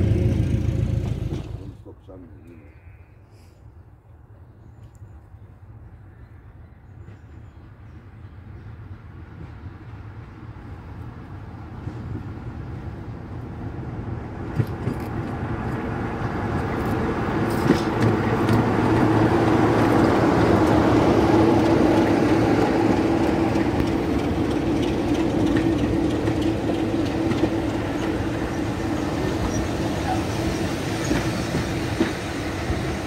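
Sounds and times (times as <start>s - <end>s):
diesel locomotive engine rumble: 0.0s - 2.7s, 5.6s - 33.0s
coaches rolling on rails: 7.0s - 33.0s.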